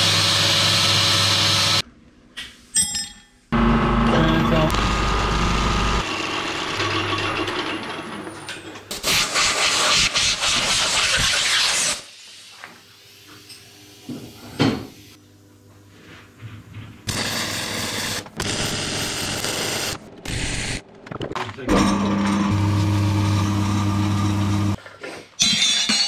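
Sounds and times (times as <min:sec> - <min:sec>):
high whine: 0:03.6 - 0:06.1
milling machine cutting metal: 0:03.6 - 0:08.0, 0:21.7 - 0:24.8
arc welding hissing: 0:04.7 - 0:06.0, 0:17.1 - 0:20.8.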